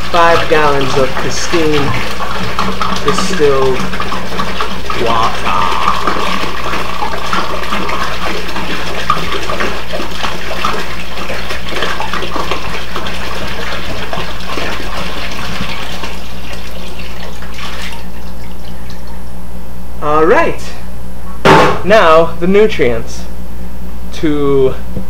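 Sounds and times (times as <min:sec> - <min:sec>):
water pouring into plastic bin: 0:00.0 - 0:19.2.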